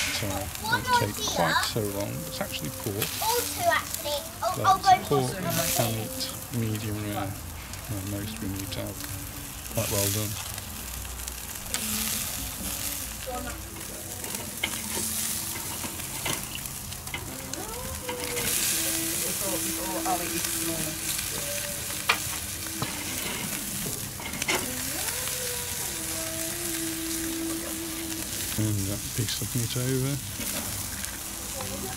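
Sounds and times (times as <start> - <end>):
food sizzling on a grill: 0.0 - 31.9
tongs clicking on grill grate: 10.4 - 19.2, 21.2 - 25.8.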